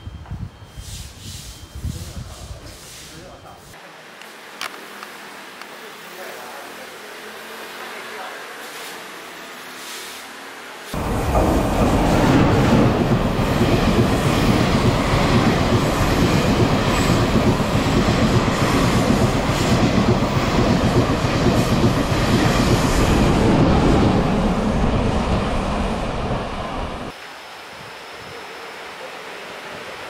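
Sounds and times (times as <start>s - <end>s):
train passing at speed: 4.4s - 30.0s
wheels clacking over rail joints: 11.0s - 23.0s.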